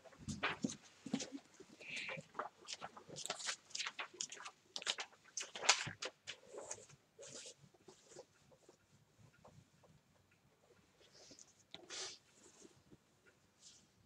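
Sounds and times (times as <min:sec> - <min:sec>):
faint paper handling sounds: 0:00.0 - 0:09.9
book pages turning: 0:02.0 - 0:08.2.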